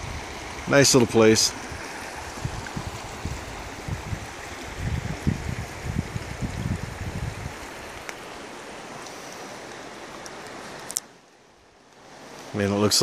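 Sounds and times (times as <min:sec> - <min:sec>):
river water rushing: 0:00.0 - 0:13.0
low rumbles on microphone: 0:01.6 - 0:07.7.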